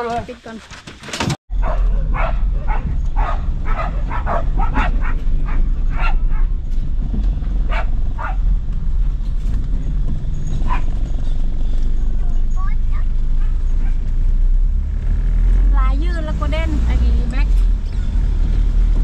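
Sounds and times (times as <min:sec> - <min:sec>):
road noise: 0:00.0 - 0:19.0
dogs barking and yipping: 0:01.5 - 0:06.7, 0:07.5 - 0:08.6, 0:09.9 - 0:11.6, 0:13.2 - 0:14.2
vehicle engine rumble inside cab: 0:01.5 - 0:19.0.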